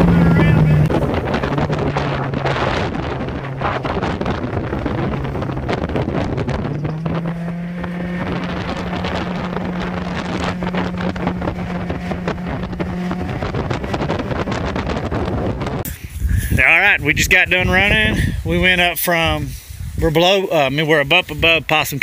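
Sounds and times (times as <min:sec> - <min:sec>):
outboard motor running: 0:00.0 - 0:16.5
wind buffeting microphone: 0:00.0 - 0:22.0.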